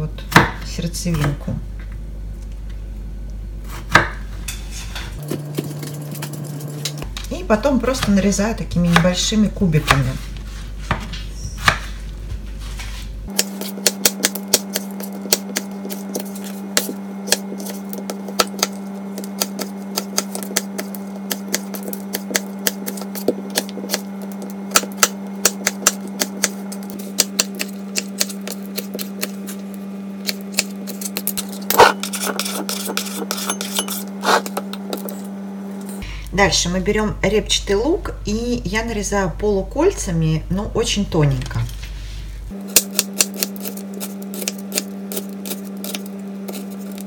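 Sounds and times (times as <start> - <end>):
steady low hum: 0.0 - 47.0
knife chopping on plastic board: 3.7 - 4.2, 10.8 - 11.9, 13.3 - 29.6, 30.2 - 35.2, 42.7 - 47.0.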